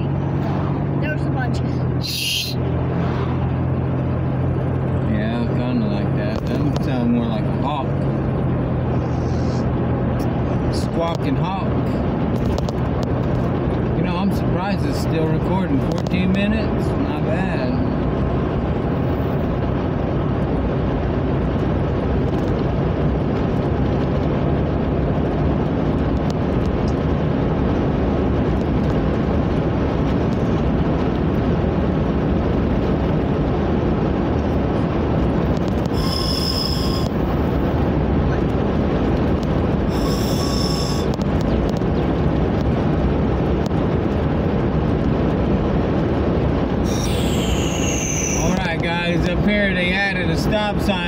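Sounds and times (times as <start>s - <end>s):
vehicle engine and tyre noise: 0.0s - 51.0s
brief high-pitched sounds: 2.0s - 2.6s.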